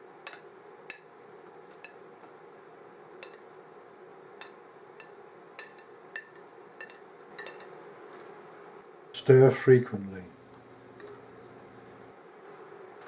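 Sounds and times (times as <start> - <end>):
faint steady hum: 0.0 - 13.0
metal utensil stirring: 4.4 - 7.8.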